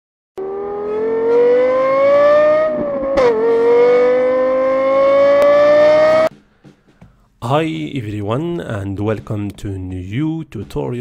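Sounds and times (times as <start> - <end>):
car engine accelerating: 0.4 - 6.3.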